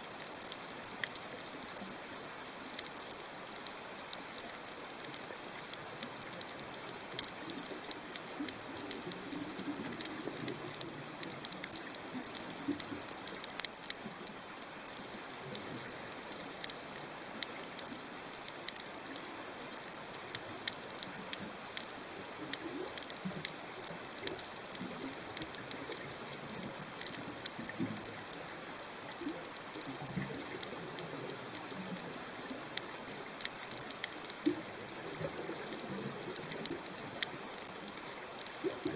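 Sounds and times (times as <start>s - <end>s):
crackling hiss of small clicks: 0.0s - 38.9s.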